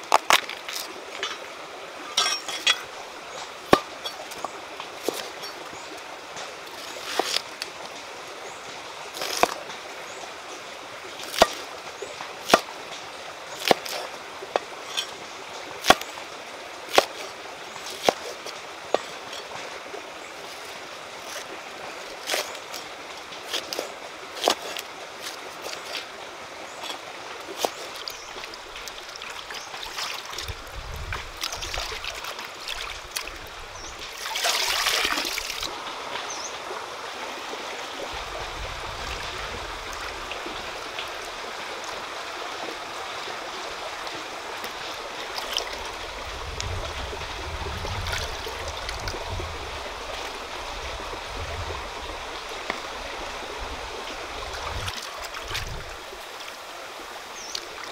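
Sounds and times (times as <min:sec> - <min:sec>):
stream water over rocks: 0:00.0 - 0:57.9
water splash: 0:26.7 - 0:35.8, 0:54.4 - 0:56.3.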